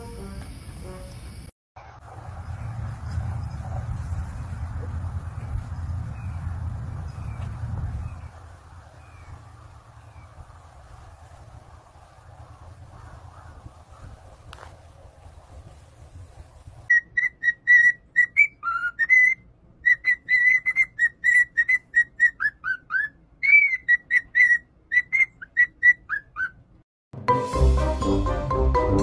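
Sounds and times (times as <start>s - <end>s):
cockatiel whistling: 16.9s - 26.6s.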